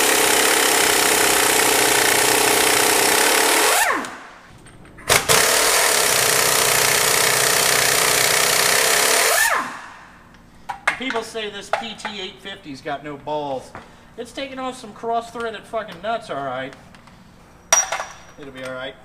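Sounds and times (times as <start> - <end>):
air impact wrench hammering: 0.0 - 4.3, 5.0 - 10.0.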